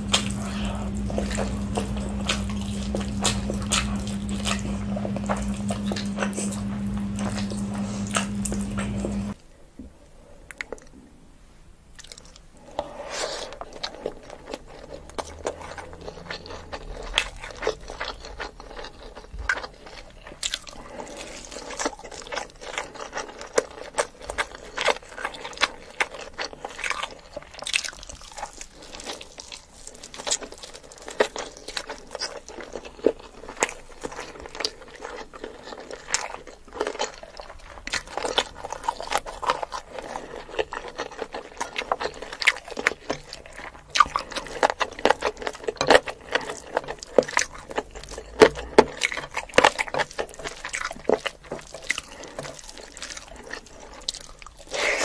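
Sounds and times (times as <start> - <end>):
close-miked chewing and biting: 0.0 - 9.4, 11.9 - 55.0.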